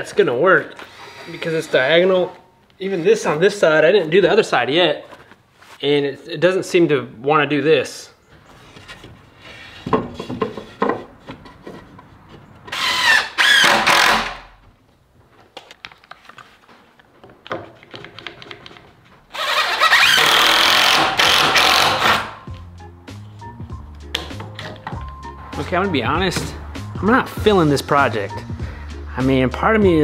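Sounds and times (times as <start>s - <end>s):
cordless drill driving screws: 0.7s - 2.2s, 12.7s - 14.4s, 19.3s - 22.4s.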